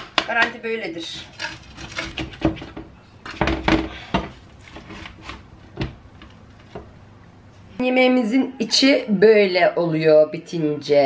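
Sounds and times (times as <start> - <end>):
utensils scraping a baking dish: 0.0 - 2.8, 3.9 - 5.4.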